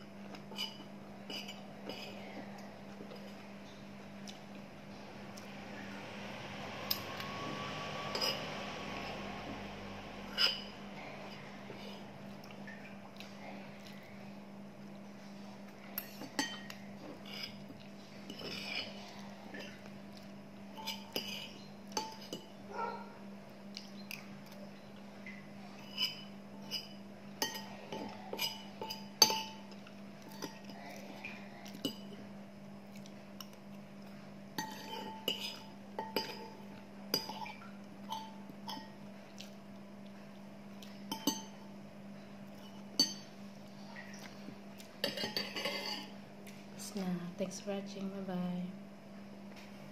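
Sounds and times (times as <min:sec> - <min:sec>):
steady low hum: 0:00.0 - 0:49.9
cutlery clinking against a bowl: 0:00.5 - 0:02.2, 0:08.2 - 0:08.5, 0:10.3 - 0:10.7, 0:20.7 - 0:22.5, 0:25.9 - 0:30.7, 0:34.6 - 0:39.0, 0:41.1 - 0:41.6, 0:42.6 - 0:43.3, 0:45.0 - 0:46.1.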